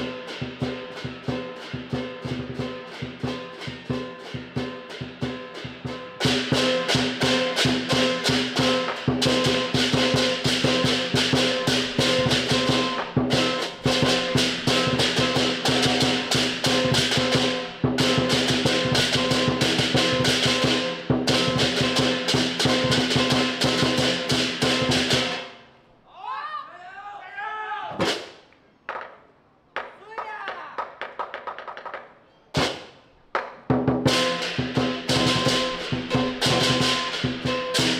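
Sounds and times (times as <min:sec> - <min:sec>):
big drum: 0:00.0 - 0:25.6, 0:33.7 - 0:37.9.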